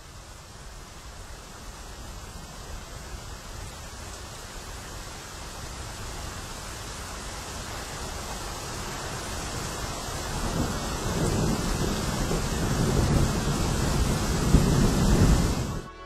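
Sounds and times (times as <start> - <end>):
rain hissing: 0.0 - 15.9
thunder rumbling: 10.2 - 15.9.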